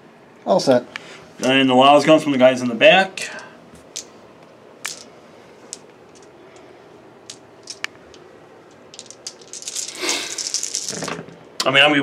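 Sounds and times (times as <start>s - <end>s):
plastic dice clicking: 4.8s - 5.1s, 7.3s - 11.2s.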